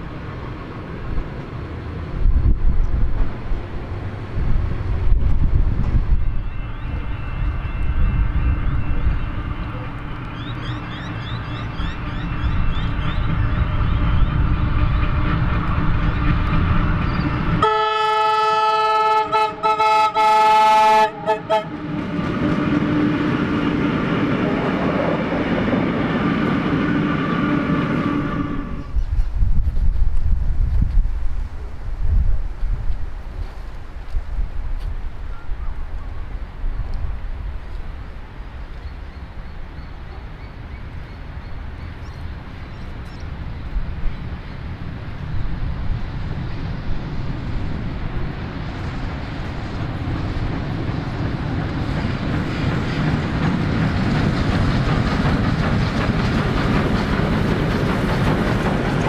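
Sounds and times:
wind buffeting microphone: 0.0s - 10.6s, 21.7s - 59.0s
train rumbling: 0.0s - 59.0s
train horn blasts: 6.2s - 10.5s, 16.9s - 23.8s.

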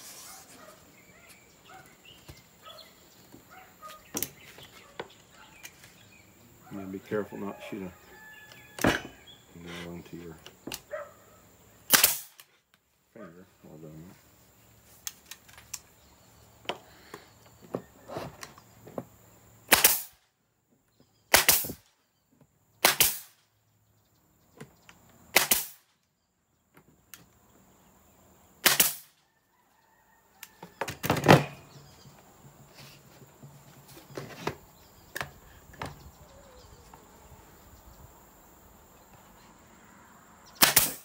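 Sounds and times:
nail gun shots into plywood: 11.9s - 12.4s, 19.7s - 20.2s, 21.3s - 21.8s, 22.8s - 23.4s, 25.3s - 25.9s, 28.6s - 29.1s, 40.6s - 41.0s.

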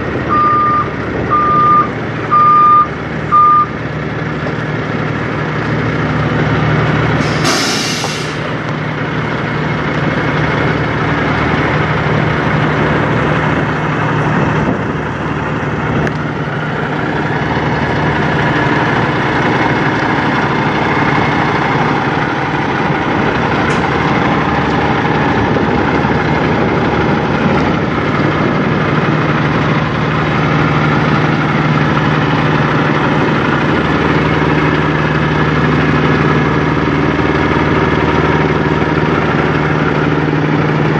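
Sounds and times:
diesel truck engine idling: 0.0s - 40.9s
short hiss: 7.2s - 8.5s.

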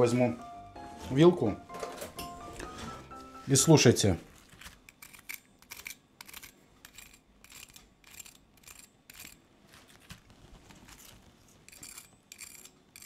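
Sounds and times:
fork scraping food: 4.9s - 9.4s, 10.9s - 13.0s
crispy crust crackling: 9.5s - 12.2s.

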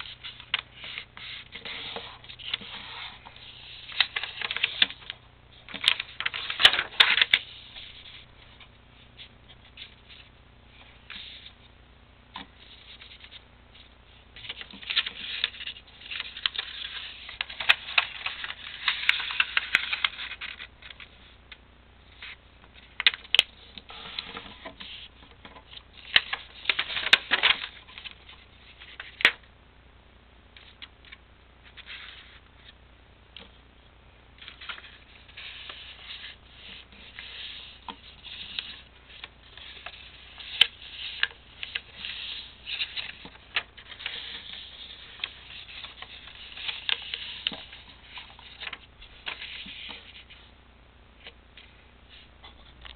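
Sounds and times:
paper creases crackling: 0.0s - 8.6s, 12.6s - 21.1s, 23.0s - 29.4s, 34.4s - 50.4s
paper rustling and crinkling: 0.0s - 10.3s, 14.4s - 21.1s, 22.2s - 29.4s, 34.4s - 50.4s.

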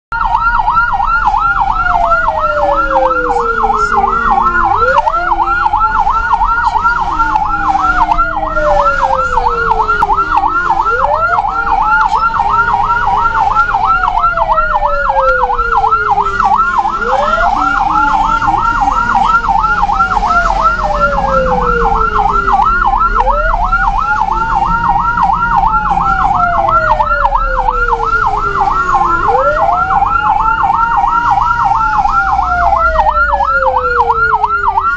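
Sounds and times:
ambulance siren wailing: 0.1s - 34.9s.

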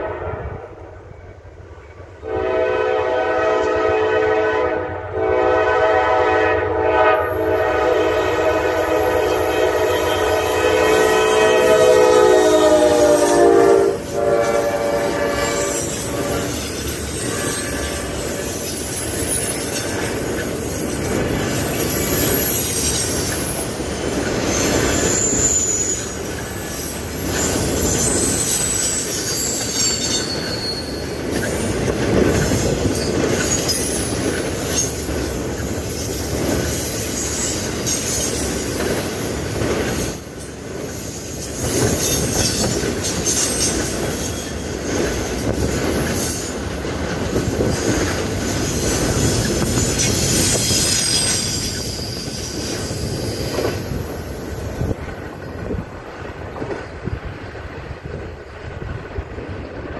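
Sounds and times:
train wheels rumbling on rail: 0.0s - 59.9s
high wavering wheel squeal: 7.6s - 20.0s, 21.7s - 31.9s, 35.8s - 39.4s, 49.2s - 55.0s.

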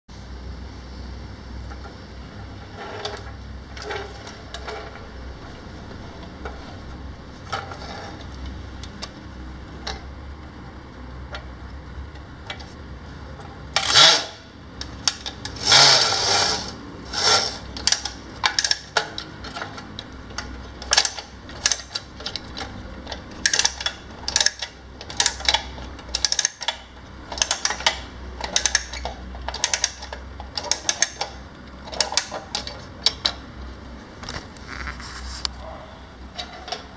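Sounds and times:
scraping sounds: 2.5s - 8.4s, 34.1s - 36.8s.

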